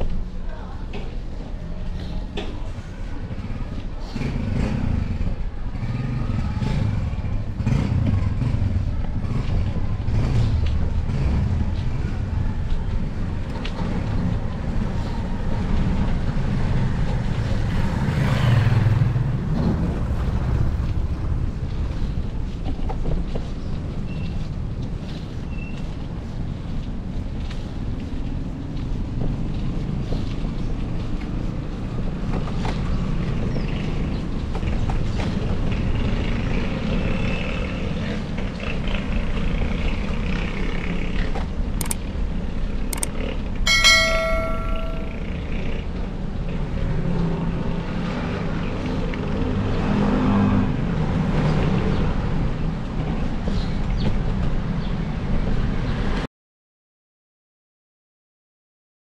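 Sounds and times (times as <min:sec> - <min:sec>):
wind and road noise: 0:00.0 - 0:56.3
sharp clicks: 0:41.8 - 0:42.0, 0:42.9 - 0:43.1
bicycle bell ding: 0:43.7 - 0:45.4.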